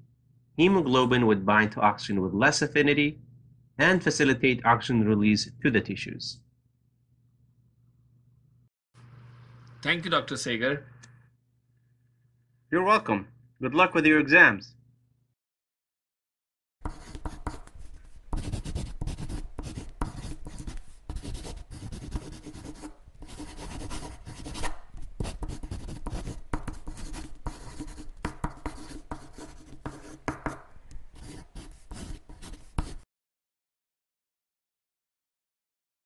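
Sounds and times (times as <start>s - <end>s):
marker scratching on board: 16.8s - 33.0s.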